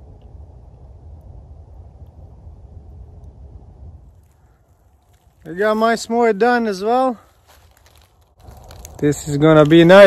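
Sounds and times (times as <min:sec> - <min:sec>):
faint low rumble: 0:00.0 - 0:05.6.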